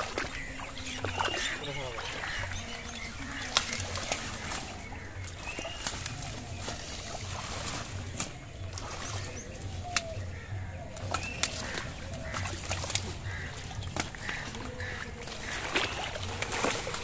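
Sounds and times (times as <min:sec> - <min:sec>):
muddy water sloshing and splashing: 0:00.0 - 0:17.0
bird chirps: 0:00.2 - 0:07.0.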